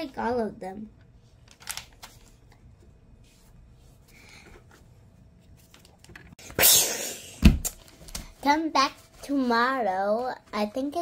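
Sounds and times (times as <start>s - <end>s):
book page flipping: 1.4s - 2.6s, 5.4s - 6.4s
paper rustling: 1.4s - 2.6s.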